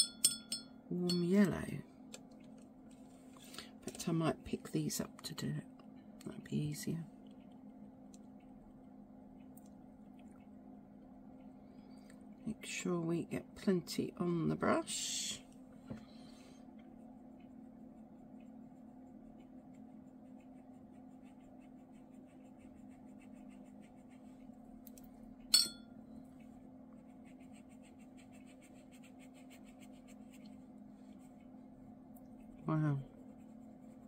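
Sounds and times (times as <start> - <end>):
sharp clink: 0.0 - 1.3, 25.5 - 25.9
steady low hum: 0.0 - 34.0
paintbrush scratching on paper: 16.9 - 24.7, 26.4 - 31.6, 32.3 - 34.0.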